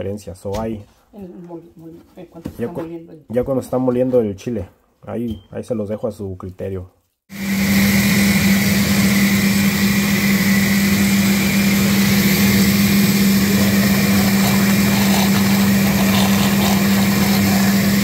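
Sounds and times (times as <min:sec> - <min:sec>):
blender motor whirring: 0:07.3 - 0:18.0.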